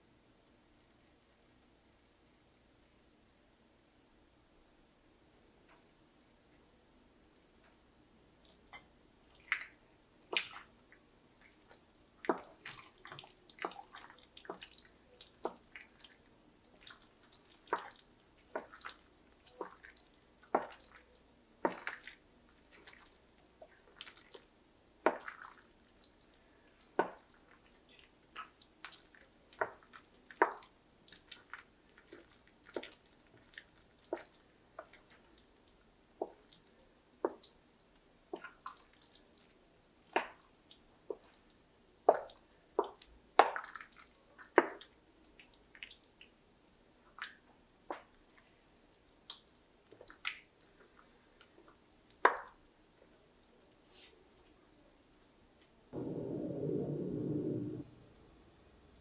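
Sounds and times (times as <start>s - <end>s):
spoon stirring sticky pasta: 8.5s - 24.5s, 25.1s - 46.0s.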